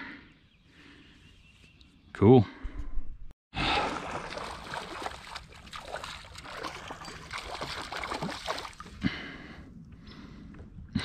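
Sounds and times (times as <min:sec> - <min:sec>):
water splashing and trickling: 0:03.6 - 0:09.3.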